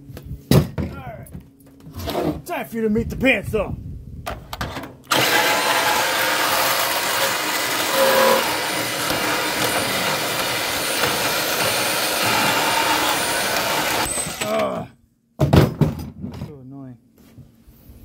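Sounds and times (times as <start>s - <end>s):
angle grinder cutting metal: 5.1s - 14.5s.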